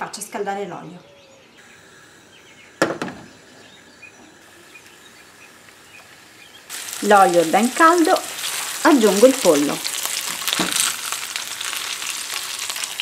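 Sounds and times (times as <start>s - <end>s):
frying pan knocking on metal grate: 2.8s - 3.3s.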